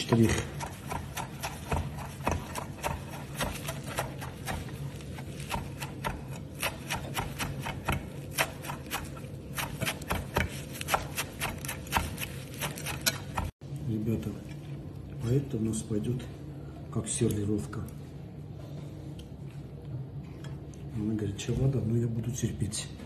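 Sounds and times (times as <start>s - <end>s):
knife chopping on wooden board: 0.0s - 13.6s.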